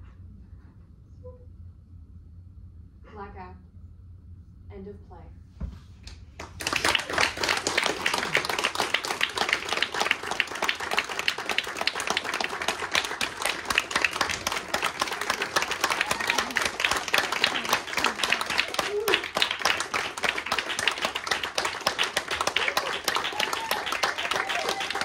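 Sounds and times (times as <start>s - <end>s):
audience applauding: 6.4s - 25.0s.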